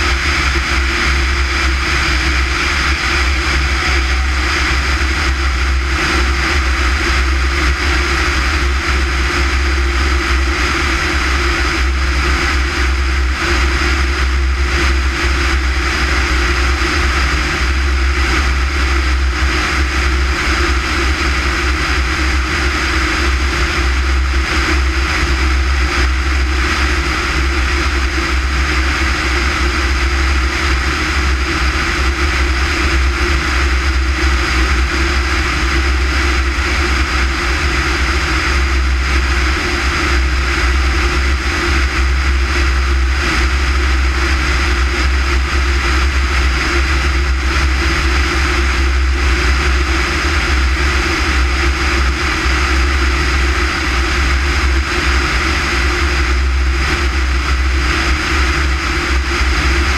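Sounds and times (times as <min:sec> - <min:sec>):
air rushing over camera: 0:00.0 - 0:10.5
propeller aircraft engine droning: 0:00.0 - 0:59.9.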